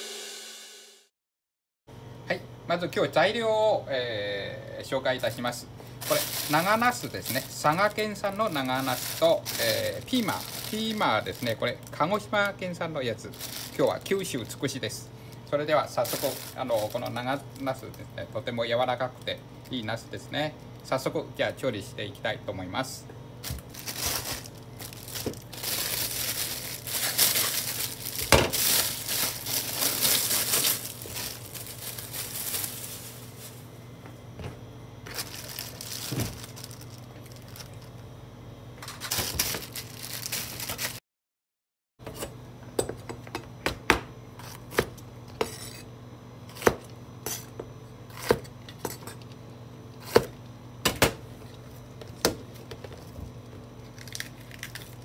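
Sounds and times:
plastic bag crinkling: 0:05.1 - 0:18.0, 0:23.4 - 0:33.8, 0:35.0 - 0:38.0, 0:38.9 - 0:41.0, 0:53.9 - 0:55.0
knife chopping on cutting board: 0:43.6 - 0:45.8, 0:46.5 - 0:47.4.

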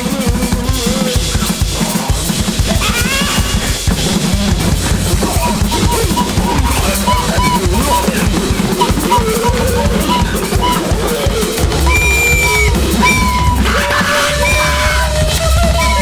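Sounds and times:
electronic drum kit: 0:00.0 - 0:16.0
wavering bending synth tones: 0:03.8 - 0:16.0
high synth blips: 0:03.9 - 0:11.0, 0:11.7 - 0:16.0.

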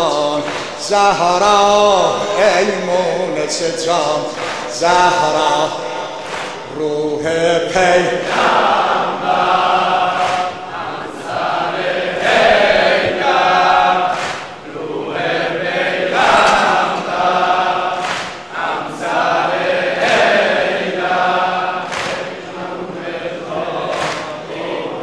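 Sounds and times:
crowd of men chanting: 0:00.0 - 0:25.0
chest-beating slaps: 0:04.3 - 0:06.7, 0:10.1 - 0:10.6, 0:14.1 - 0:14.6, 0:18.0 - 0:18.5, 0:21.9 - 0:22.4, 0:23.9 - 0:24.4.

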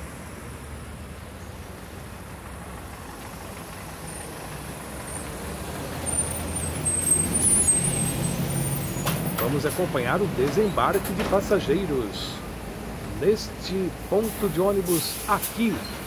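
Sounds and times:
diesel bus engine rumble: 0:00.0 - 0:16.0
high brake squeal: 0:06.0 - 0:09.5.

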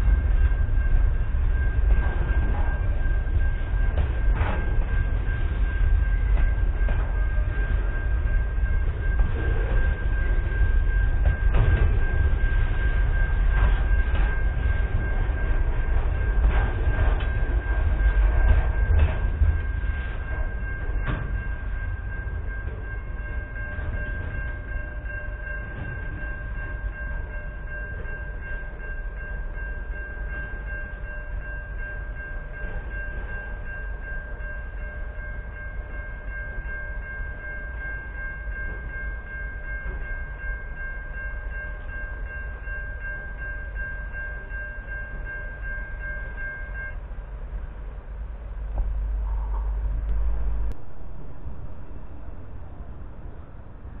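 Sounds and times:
wind rumble on microphone: 0:00.0 - 0:25.0, 0:47.4 - 0:54.0
freight train running: 0:00.0 - 0:54.0
level crossing bells ringing: 0:00.5 - 0:47.1.

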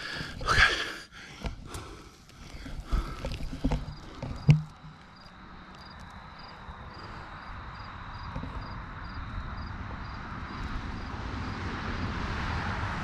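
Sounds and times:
camping gear knocks and clunks: 0:00.0 - 0:05.4, 0:08.2 - 0:08.8
quiet handling of gear: 0:00.1 - 0:06.2.

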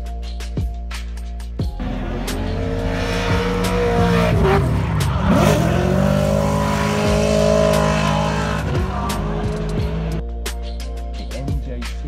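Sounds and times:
car engine at high revs: 0:01.8 - 0:10.2.

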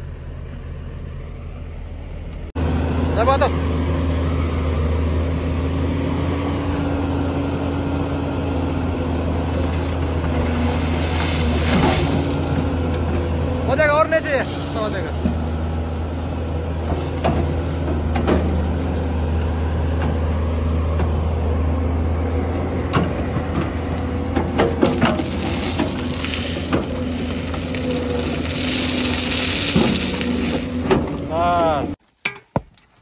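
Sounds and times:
diesel engine running: 0:00.0 - 0:32.0
gravel pouring rattling: 0:09.5 - 0:13.1, 0:23.2 - 0:31.9
bucket scraping stone chips: 0:09.8 - 0:12.6, 0:24.0 - 0:31.8.

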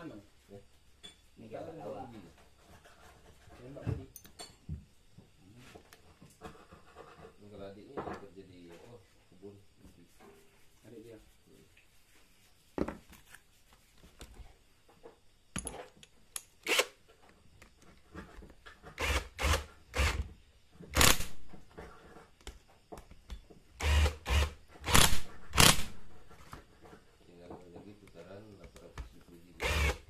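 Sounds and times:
power drill short spins: 0:19.0 - 0:20.2, 0:23.8 - 0:25.9, 0:29.6 - 0:30.0.

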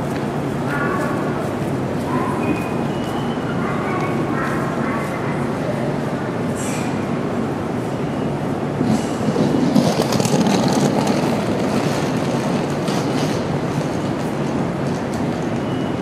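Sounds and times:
train clattering on rails: 0:08.7 - 0:16.0.

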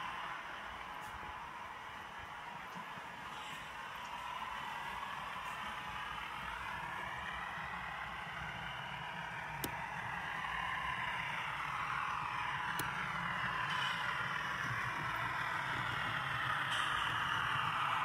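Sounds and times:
model trains running: 0:00.0 - 0:18.0
sharp clicks of track points: 0:09.4 - 0:10.8, 0:11.6 - 0:18.0.

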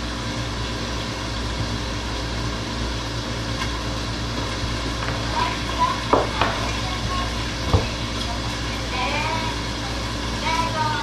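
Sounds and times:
low machine hum: 0:00.0 - 0:11.0
cleaver knocking on cutting board: 0:07.7 - 0:08.0.

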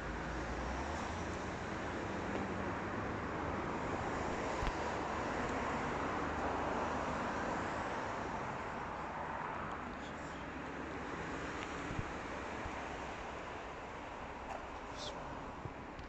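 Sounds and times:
distant city traffic hum: 0:00.0 - 0:16.0.

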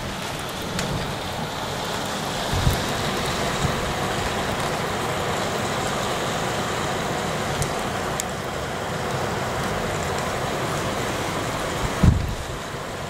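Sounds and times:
very heavy rain falling: 0:00.0 - 0:13.0.

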